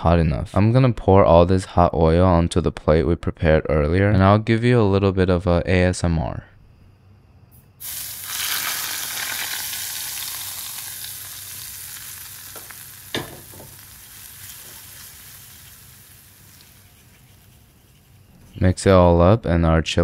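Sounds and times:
hot oil sizzling: 7.8s - 18.6s
light knocks: 12.6s - 13.8s.

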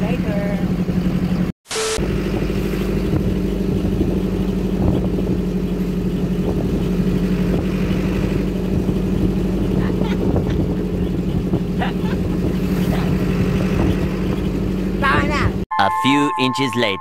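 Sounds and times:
vehicle engine running: 0.0s - 15.6s
wind rumbling on microphone: 2.2s - 15.6s.

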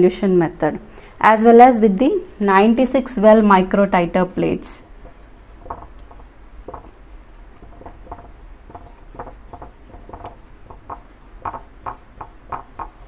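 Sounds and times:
marker pen writing on whiteboard: 4.2s - 13.0s.

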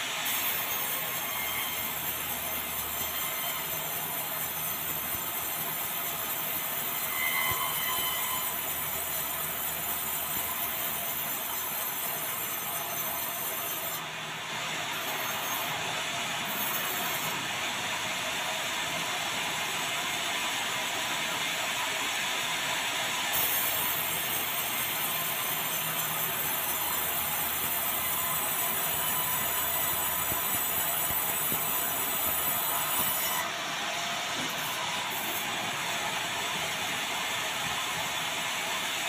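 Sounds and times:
band sawmill sawing hardwood: 23.3s - 38.7s.

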